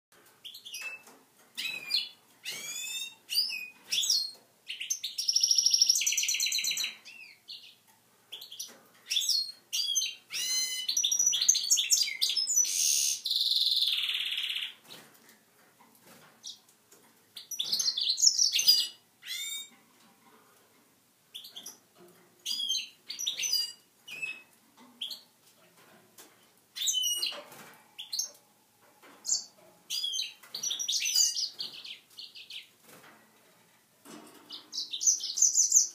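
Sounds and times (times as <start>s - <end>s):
bird singing: 0.4s - 14.8s, 17.4s - 19.8s, 22.4s - 25.3s, 26.8s - 27.4s, 29.2s - 32.7s, 34.4s - 35.9s.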